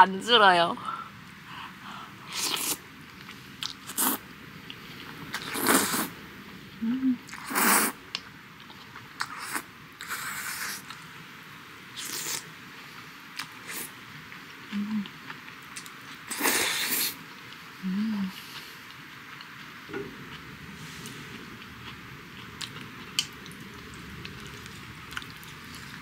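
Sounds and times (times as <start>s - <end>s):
person slurping noodles: 2.3s - 2.8s, 5.4s - 6.1s, 7.3s - 8.0s, 16.3s - 17.2s.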